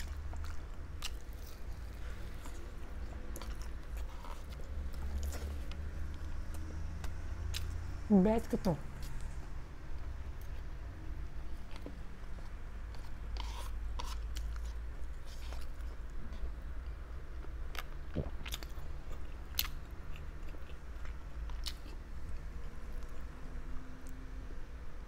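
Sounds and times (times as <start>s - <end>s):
person chewing meat: 0.0s - 7.9s, 11.5s - 23.3s
steady low hum: 0.0s - 25.0s.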